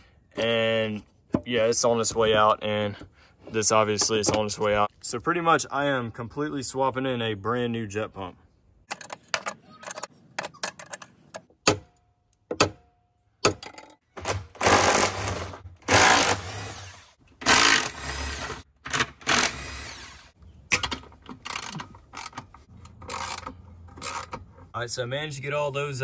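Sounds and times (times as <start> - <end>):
handling clicks and knocks: 8.9 - 12.8, 20.6 - 24.7.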